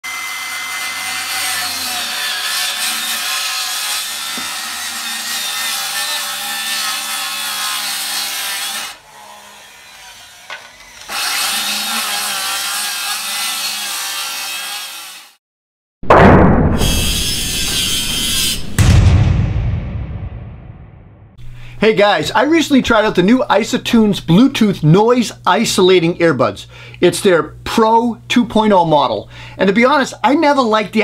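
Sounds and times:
saw cutting through wood: 0:00.0 - 0:15.4, 0:16.8 - 0:18.8
loud whoosh: 0:16.1 - 0:21.4.

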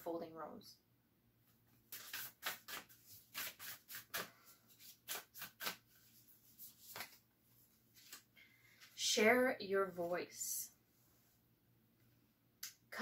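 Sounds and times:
cards shuffling: 0:01.9 - 0:07.2, 0:07.9 - 0:09.0.

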